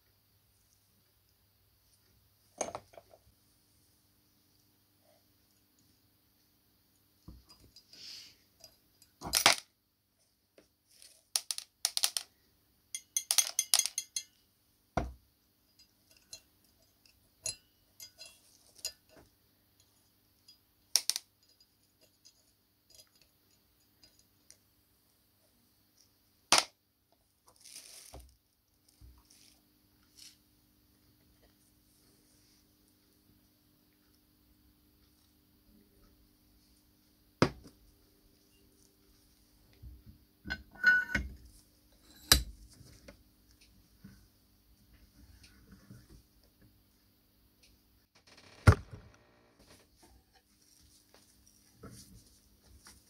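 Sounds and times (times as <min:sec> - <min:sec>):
small metal parts clinking: 0:11.0 - 0:12.3, 0:13.0 - 0:14.4.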